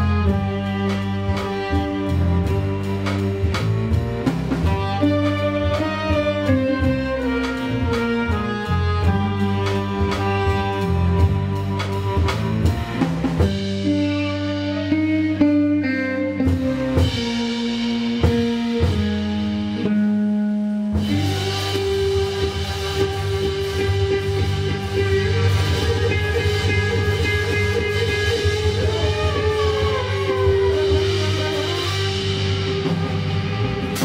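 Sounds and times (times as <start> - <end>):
orchestral ensemble low held notes: 0.0 - 34.0.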